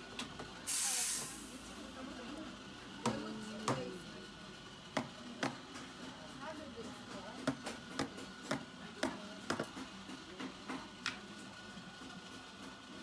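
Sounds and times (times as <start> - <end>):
steam wand hissing: 0.7 - 1.6.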